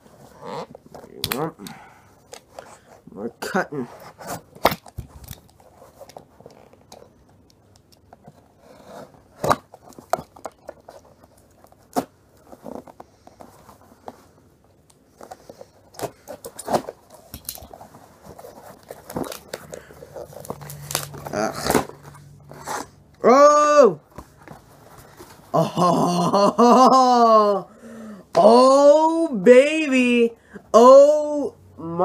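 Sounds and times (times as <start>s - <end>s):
cardboard clicks scrapes and rustles: 3.8s - 7.4s, 8.1s - 23.1s.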